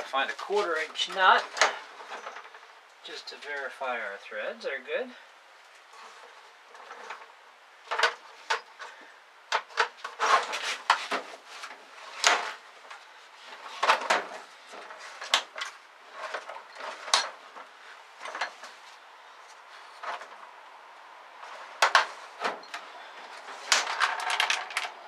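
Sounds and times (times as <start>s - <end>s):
metal hardware clinking and rattling: 1.0s - 2.7s, 13.8s - 18.8s, 21.4s - 25.0s.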